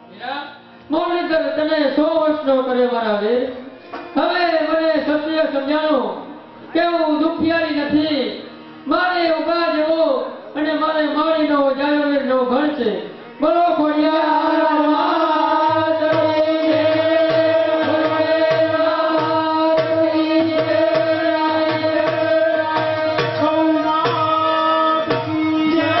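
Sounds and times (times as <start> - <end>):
hand drum beat: 16.1 - 26.0.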